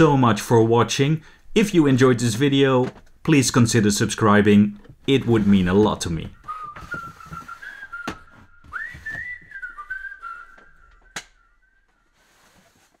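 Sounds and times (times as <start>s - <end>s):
person whistling: 6.4s - 12.2s.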